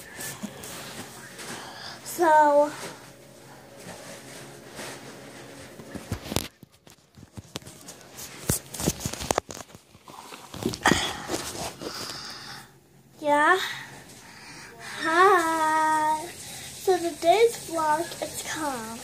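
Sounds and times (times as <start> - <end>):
phone handling rustling: 5.7 - 11.9.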